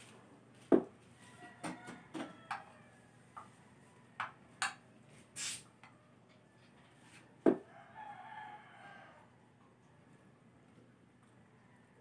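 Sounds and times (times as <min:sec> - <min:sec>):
brief soft hiss: 0:05.4 - 0:05.7.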